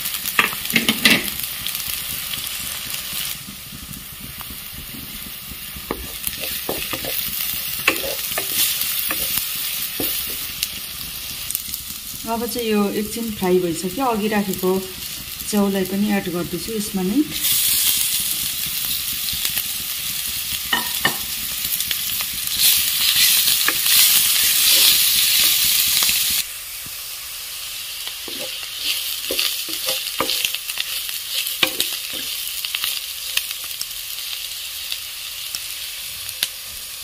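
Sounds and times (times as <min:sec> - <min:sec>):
mushrooms sizzling in oil: 0:00.0 - 0:37.0
spatula scraping a pan: 0:04.9 - 0:10.8, 0:22.4 - 0:26.4, 0:28.2 - 0:33.0.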